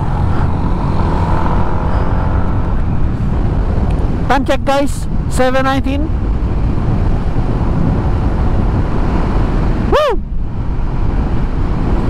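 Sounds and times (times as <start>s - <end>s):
motorcycle wind and road noise: 0.0s - 12.0s
rider shouting woo: 9.9s - 10.3s.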